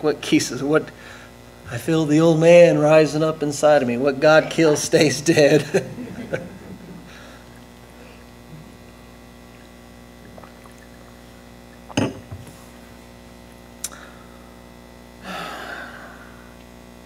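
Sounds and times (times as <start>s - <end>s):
electrical hum: 0.0s - 17.0s
glass knocking on a lectern: 11.9s - 12.4s
glass tapping: 11.9s - 12.4s.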